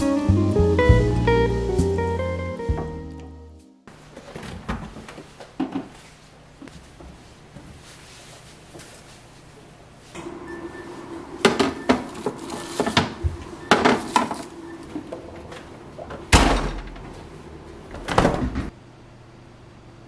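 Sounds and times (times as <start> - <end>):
plastic containers clattering: 11.4 - 16.3.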